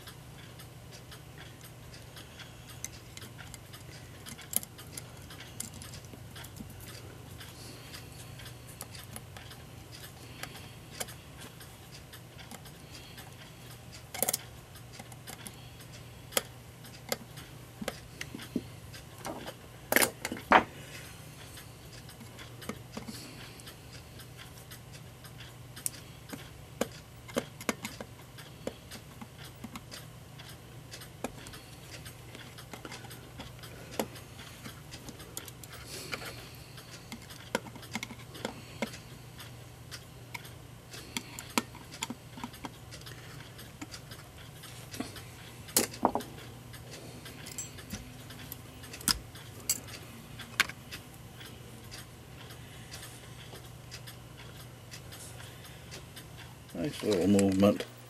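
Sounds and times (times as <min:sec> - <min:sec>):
small metallic clicks and taps: 0:00.0 - 0:58.0
steady low hum: 0:00.0 - 0:58.0.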